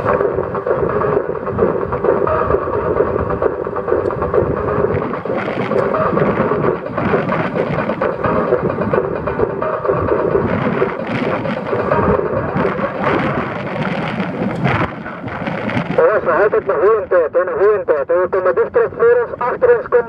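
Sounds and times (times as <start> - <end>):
car road noise: 0.0 - 16.0
wind buffeting microphone: 0.0 - 17.3.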